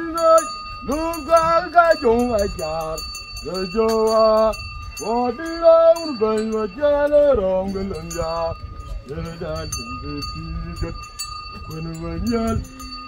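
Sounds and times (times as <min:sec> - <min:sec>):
person singing long held notes: 0:11.6 - 0:13.0.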